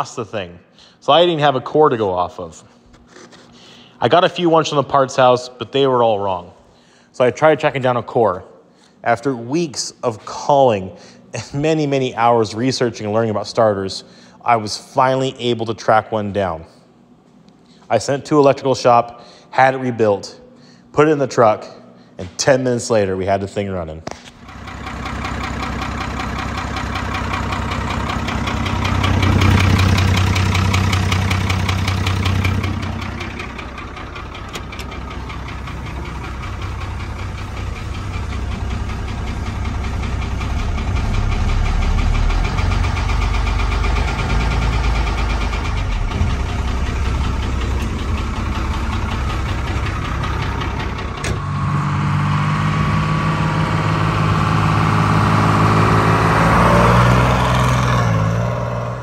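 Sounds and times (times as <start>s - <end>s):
diesel engine running: 24.3s - 59.0s.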